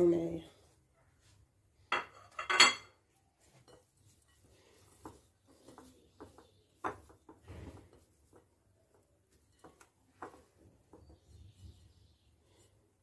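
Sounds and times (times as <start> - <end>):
hands squishing wet mixture: 3.2 - 13.0.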